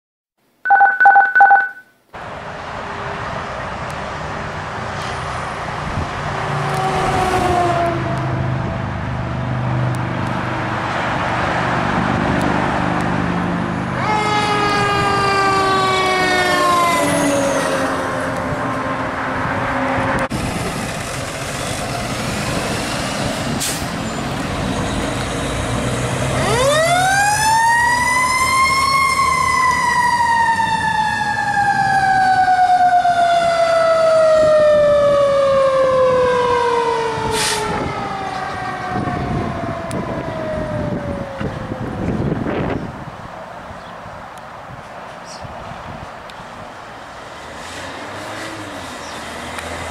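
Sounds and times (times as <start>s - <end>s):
truck engine: 2.2s - 43.1s, 46.5s - 49.9s
fire engine siren: 6.5s - 9.6s, 13.7s - 20.4s, 22.2s - 42.8s.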